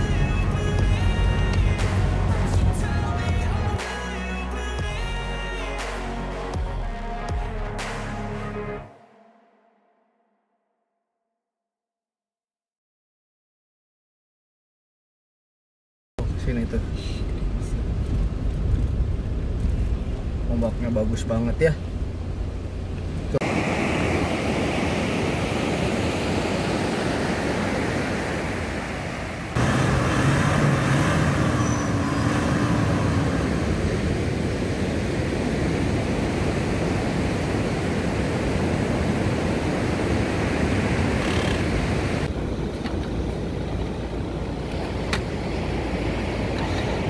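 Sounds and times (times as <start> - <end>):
wind rumble on microphone: 16.2 - 29.6, 31.0 - 47.0
ocean surf breaking: 23.3 - 47.0.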